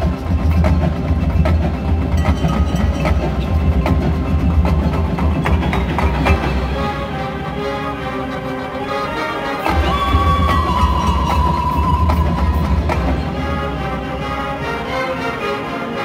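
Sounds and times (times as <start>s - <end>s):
drum and wood-block hits: 0.0s - 6.9s
marching band playing: 0.0s - 16.0s.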